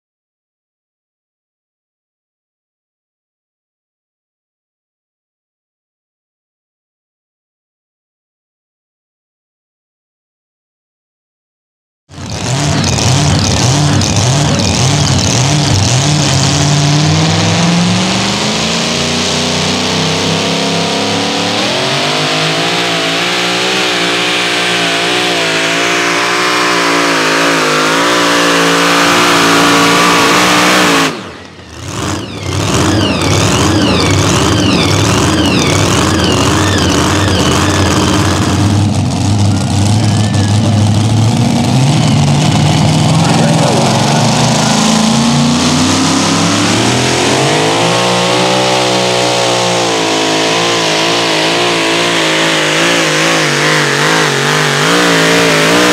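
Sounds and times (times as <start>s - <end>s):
supercharged engine at full throttle: 12.1s - 55.9s
tires spinning: 12.1s - 55.9s.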